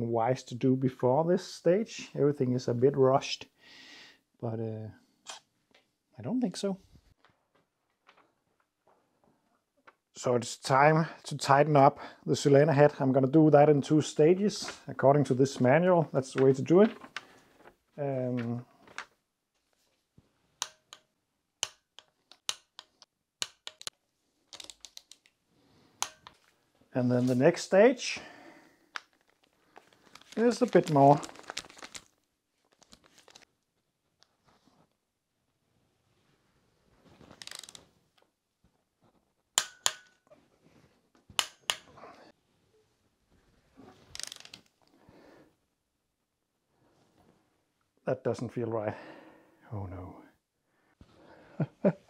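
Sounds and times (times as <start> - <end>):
wrench metallic clicks: 20.6 - 23.9
wrench and socket rattling: 37.4 - 37.8, 44.2 - 44.6.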